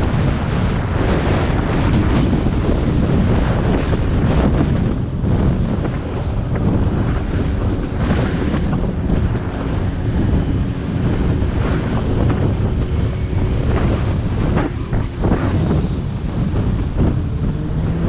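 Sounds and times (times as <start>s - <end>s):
wind rushing over microphone: 0.0s - 18.0s.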